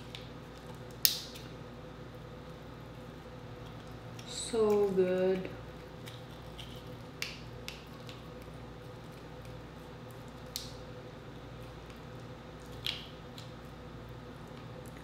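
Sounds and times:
crab shell cracking: 0.0s - 1.6s, 5.8s - 10.9s, 11.7s - 13.8s
faint steady hum: 0.0s - 15.0s.

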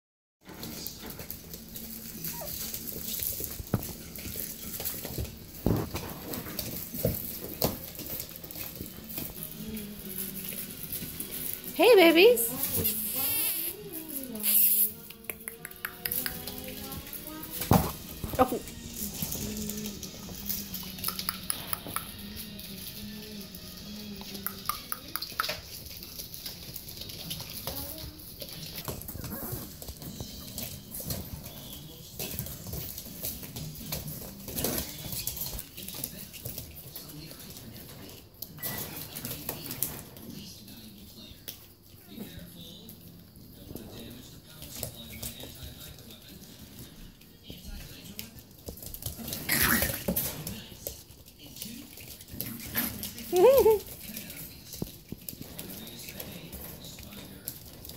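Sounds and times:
puppy paws scrabbling: 0.4s - 57.9s
puppy vocal sounds: 0.8s - 6.8s, 24.5s - 30.2s, 49.2s - 50.3s
puppy squeak: 2.2s - 2.6s.

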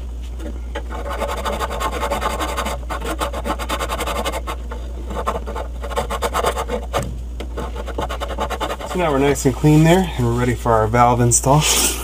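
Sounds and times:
wire brush scrubbing metal tubing: 0.9s - 6.9s, 7.5s - 10.1s.

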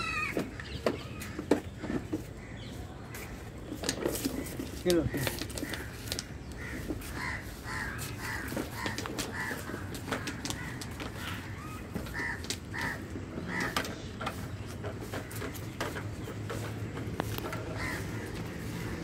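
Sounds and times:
crows cawing: 0.0s - 0.6s, 4.2s - 16.6s, 17.2s - 19.0s
faint scattered clicks: 8.1s - 18.5s.

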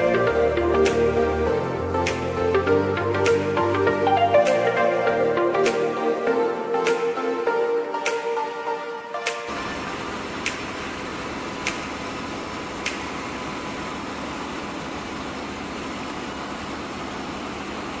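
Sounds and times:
engine room machinery hum: 0.0s - 18.0s
sharp click: 2.0s - 2.3s, 6.8s - 7.1s, 10.4s - 10.7s, 11.6s - 11.9s, 12.8s - 13.1s.

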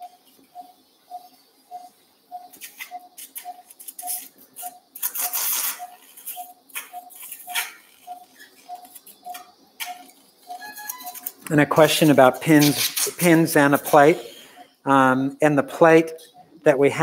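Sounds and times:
monitor beeping: 0.0s - 17.0s
surgical instruments clicking: 2.5s - 11.5s.

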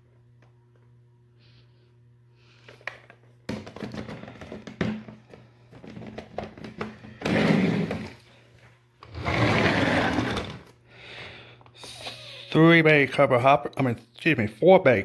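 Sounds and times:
plastic cases clicking and knocking: 2.7s - 8.2s
plastic cases scraping on countertop: 5.8s - 8.3s, 9.0s - 10.7s.

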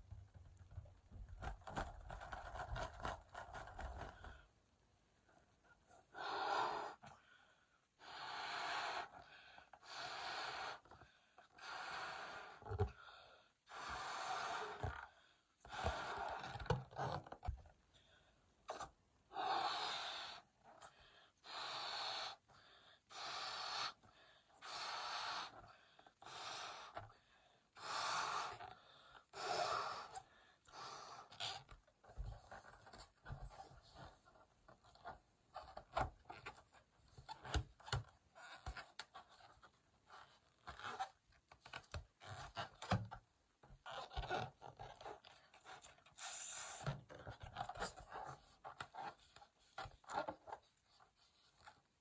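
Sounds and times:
person blowing up balloon: 46.2s - 46.9s.

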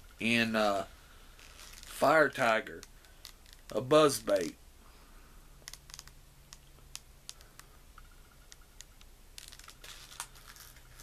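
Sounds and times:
plastic package crinkling: 1.4s - 2.0s, 9.4s - 11.0s.

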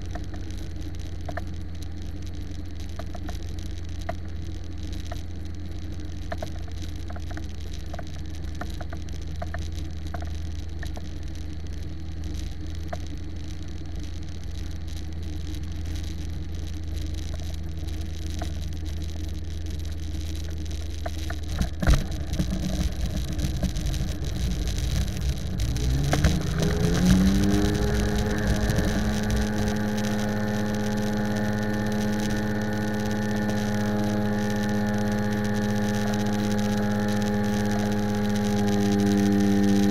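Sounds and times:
wheels rolling rumble: 0.0s - 39.9s
wheels knocking on runway: 21.0s - 30.4s.

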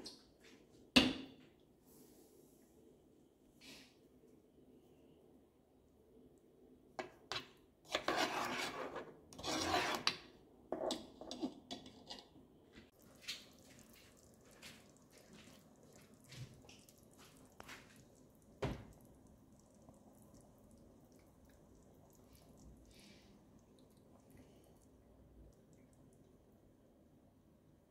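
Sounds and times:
metal spoon scraping a pot: 7.3s - 12.3s.

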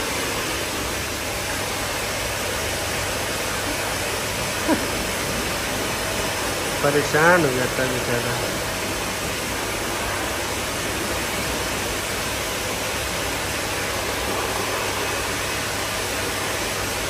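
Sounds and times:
blow dryer rushing air: 0.0s - 17.0s.

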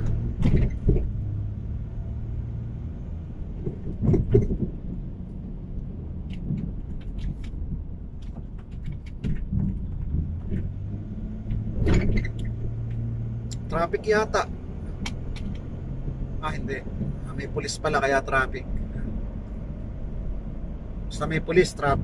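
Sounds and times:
knocks and thumps: 0.0s - 1.3s, 3.5s - 5.1s, 6.2s - 13.1s
car engine and road hum: 0.0s - 22.0s.

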